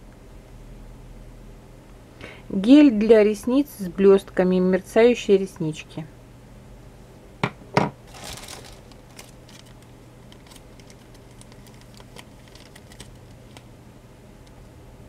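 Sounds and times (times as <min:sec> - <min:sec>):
cellophane crackling: 0:08.0 - 0:13.7
plastic packaging crinkling: 0:08.0 - 0:13.7.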